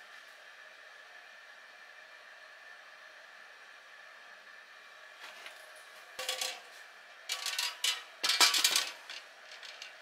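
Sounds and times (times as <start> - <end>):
metal mess tin clattering: 6.2 - 6.7, 7.3 - 9.9.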